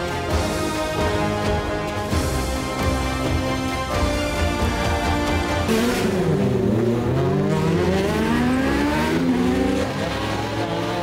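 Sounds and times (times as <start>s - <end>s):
racing car engine at high revs: 5.6s - 11.0s.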